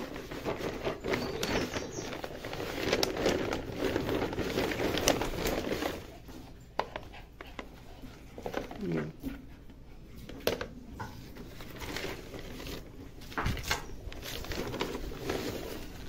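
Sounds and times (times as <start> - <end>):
plastic mailer bag crinkling: 0.0 - 6.6, 10.6 - 16.0.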